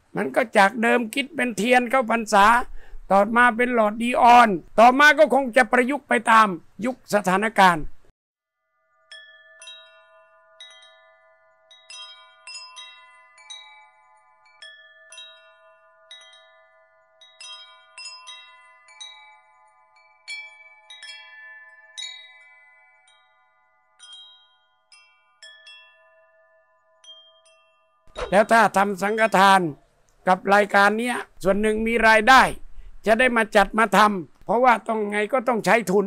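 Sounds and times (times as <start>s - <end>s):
wind chime ringing: 8.5s - 30.0s.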